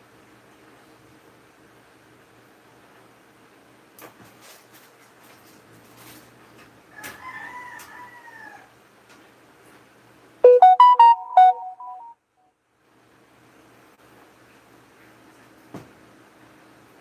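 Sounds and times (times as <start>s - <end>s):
rooster crowing: 6.9s - 8.8s
electronic beeping jingle: 10.4s - 12.1s.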